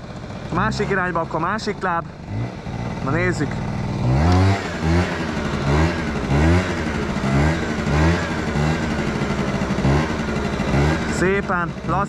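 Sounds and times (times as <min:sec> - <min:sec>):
scooter engine revving: 0:00.0 - 0:12.0.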